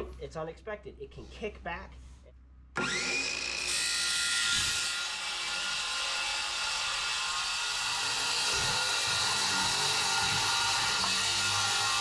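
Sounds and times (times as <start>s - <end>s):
circular saw cutting wood: 2.8s - 12.0s.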